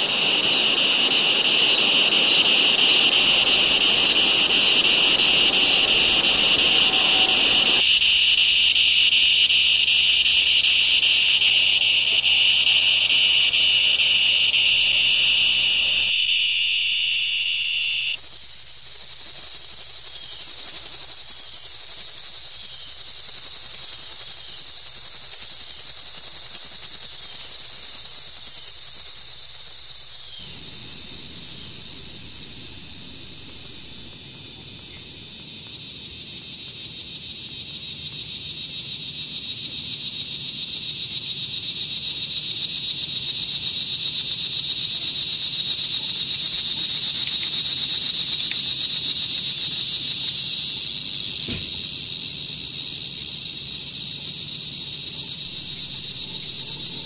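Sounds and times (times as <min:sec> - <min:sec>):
high-pitched buzzing noise hiss: 0:00.0 - 0:35.6, 0:43.0 - 0:57.0
low rumbling noise layer: 0:30.2 - 0:35.3.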